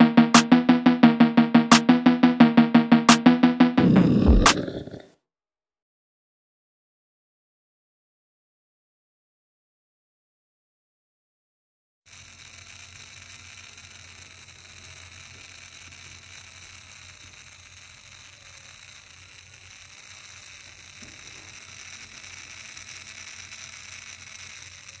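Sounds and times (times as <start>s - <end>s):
small motor whining: 12.1s - 25.0s
plastic wheels rolling on concrete: 19.5s - 23.1s.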